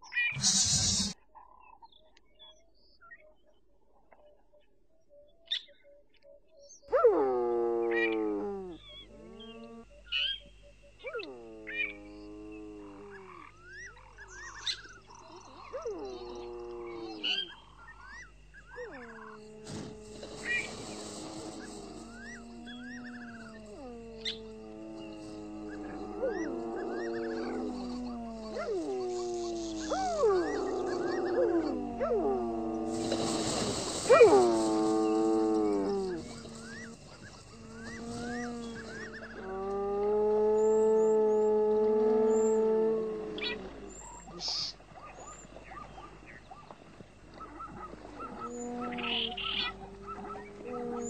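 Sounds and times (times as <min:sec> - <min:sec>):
cheetah cubs chirping: 0:00.2 - 0:01.2
cheetah cub hissing: 0:00.3 - 0:01.2, 0:19.0 - 0:26.4, 0:32.8 - 0:39.4
cheetah cubs whining: 0:11.0 - 0:41.5, 0:47.4 - 0:51.0
cheetah cubs yelping: 0:32.9 - 0:39.5.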